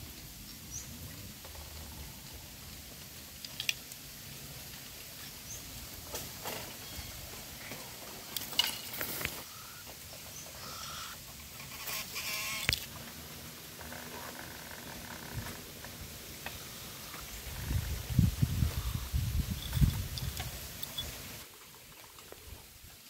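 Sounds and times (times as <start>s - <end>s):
dry leaves and twigs crackling: 3.0s - 14.0s.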